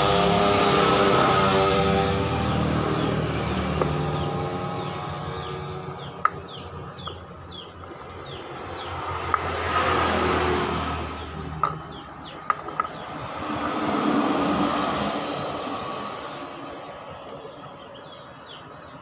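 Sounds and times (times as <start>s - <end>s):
motor vehicles passing by: 0.0s - 19.0s
bird chirping: 2.6s - 10.0s, 10.8s - 13.2s.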